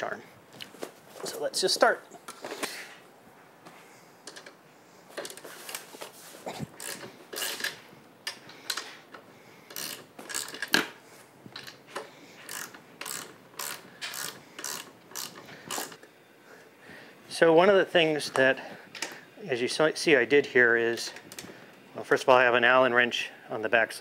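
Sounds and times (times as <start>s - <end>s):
ratchet wrench clicking: 6.8s - 8.9s, 9.7s - 10.8s, 12.4s - 16.0s.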